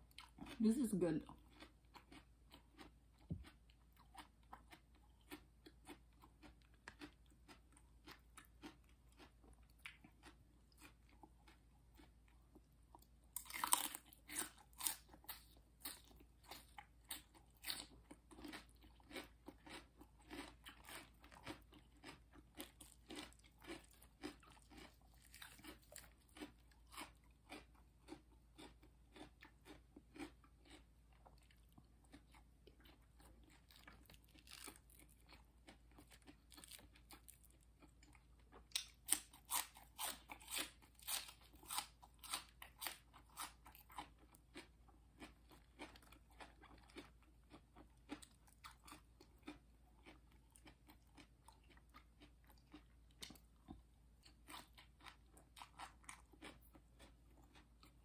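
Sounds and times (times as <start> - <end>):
chewing crunchy food: 0.0 - 58.0
crunchy bite: 13.4 - 30.8.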